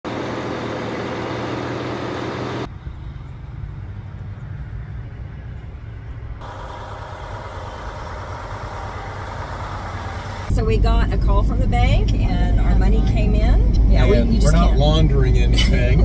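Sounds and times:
diesel truck engine idling: 0.1s - 12.5s.

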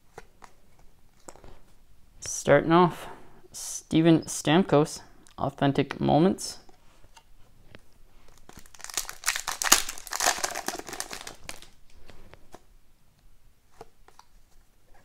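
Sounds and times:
wrapper tearing and crinkling: 8.3s - 11.8s.

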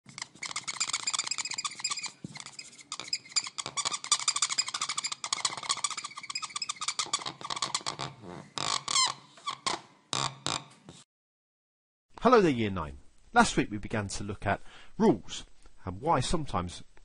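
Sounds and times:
marker pen squeaking: 0.1s - 11.0s.

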